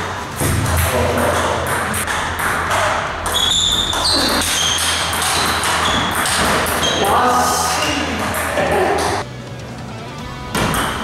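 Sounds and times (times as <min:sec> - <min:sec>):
table tennis ball pinging: 0:00.4 - 0:07.1, 0:07.8 - 0:09.2, 0:10.5 - 0:11.0.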